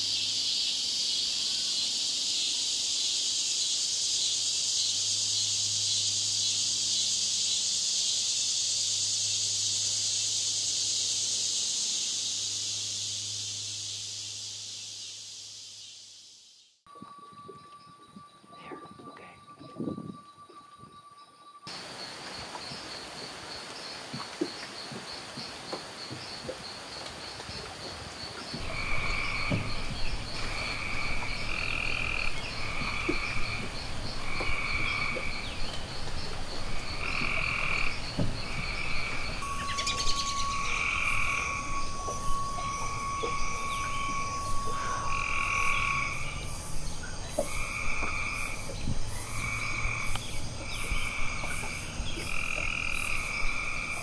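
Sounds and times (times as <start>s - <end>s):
high pulsing trill: 28.6s - 53.6s
whistle-like tone: 39.4s - 46.5s.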